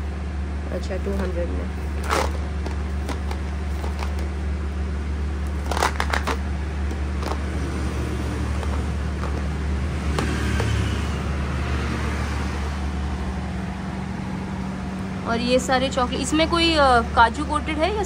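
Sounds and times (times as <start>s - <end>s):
steady low hum: 0.0s - 18.0s
plastic crinkling and crackling: 2.0s - 4.4s, 5.5s - 7.6s.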